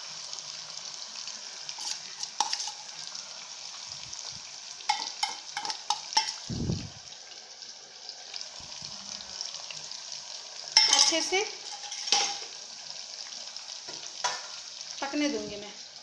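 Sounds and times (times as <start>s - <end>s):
fish frying sizzle: 0.0s - 16.0s
spoon clinking against pan: 4.9s - 6.5s, 10.8s - 12.5s.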